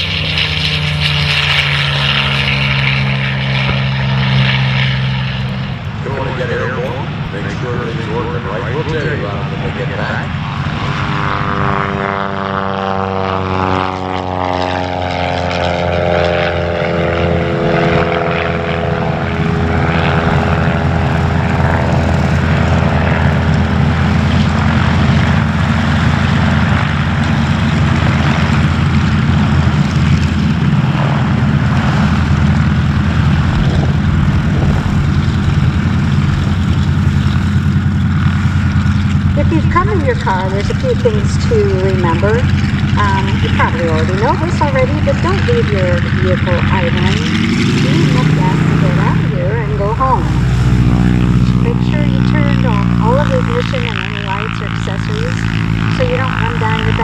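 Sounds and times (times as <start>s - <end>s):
propeller whirr: 0.0s - 57.0s
radial aircraft engines running: 0.0s - 57.0s.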